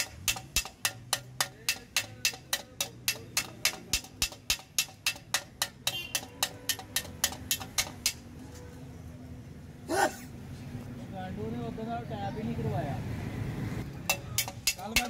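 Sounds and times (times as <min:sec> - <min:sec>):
hammer tapping on metal: 0:00.0 - 0:08.2, 0:14.1 - 0:15.0.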